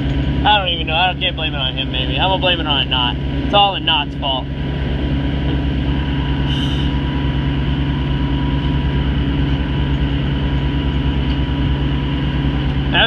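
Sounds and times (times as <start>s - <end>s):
boat engine drone: 0.0s - 13.0s.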